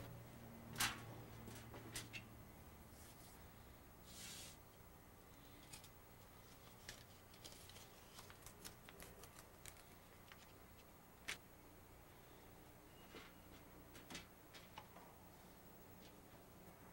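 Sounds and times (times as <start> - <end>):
paper rustling: 6.4 - 11.4.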